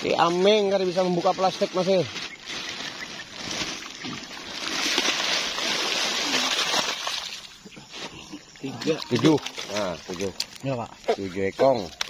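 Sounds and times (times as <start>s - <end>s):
water rushing and splashing: 2.5s - 7.7s.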